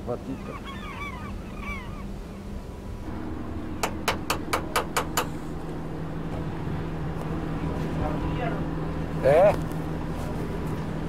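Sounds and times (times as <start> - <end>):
boat engine running: 2.2 - 11.0
sharp knocks: 3.2 - 6.5.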